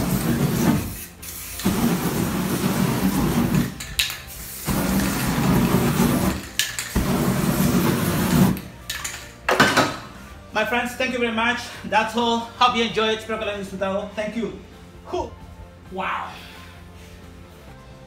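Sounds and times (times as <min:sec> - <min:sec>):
rushing blast of fire: 0:00.0 - 0:01.0, 0:01.6 - 0:03.8, 0:04.6 - 0:08.6.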